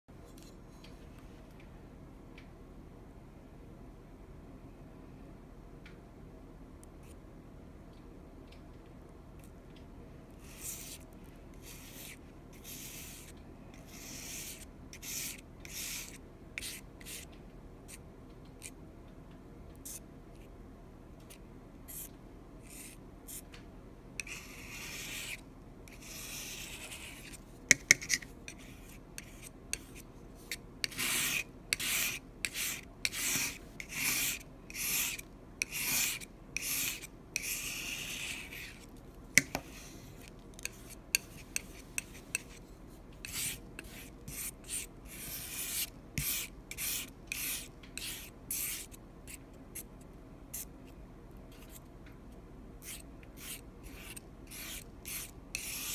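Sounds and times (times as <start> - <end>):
palette knife scraping paint: 10.4 - 17.3, 21.2 - 23.5, 24.2 - 49.9, 51.5 - 51.8, 52.8 - 55.9.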